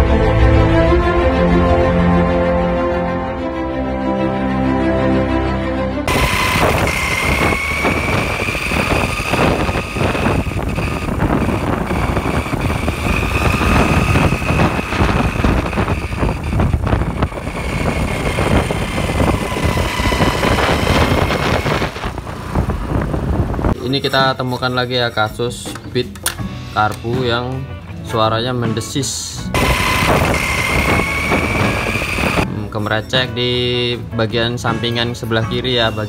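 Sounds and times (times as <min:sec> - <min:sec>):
thin steady whine: 0:06.1 - 0:22.5, 0:29.6 - 0:32.5
harsh rattling and hissing: 0:06.1 - 0:23.8, 0:29.6 - 0:32.4
scooter engine running: 0:06.1 - 0:23.8, 0:29.6 - 0:32.5.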